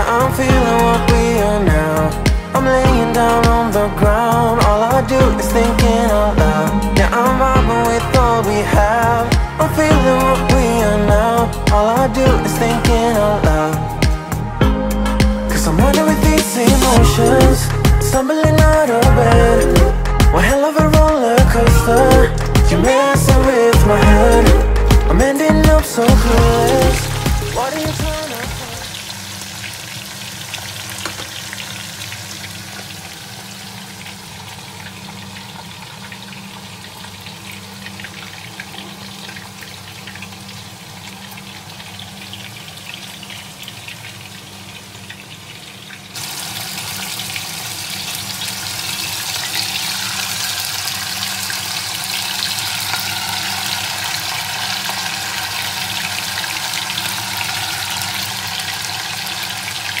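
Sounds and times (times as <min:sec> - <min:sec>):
oil sizzling in deep fryer: 0:22.9 - 1:00.0.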